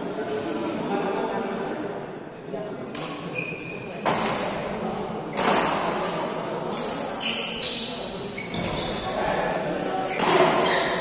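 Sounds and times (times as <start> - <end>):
shoe squeaks: 3.3 - 4.0, 5.3 - 9.2, 10.0 - 11.0
racket hitting shuttlecock: 4.0 - 4.6, 5.3 - 6.0, 10.1 - 11.0.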